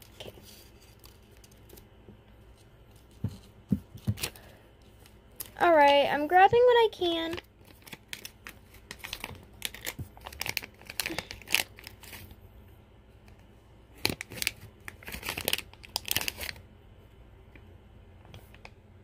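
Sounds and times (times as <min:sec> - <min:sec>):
slime crackling and crinkling: 0:04.1 - 0:12.4, 0:13.9 - 0:16.6.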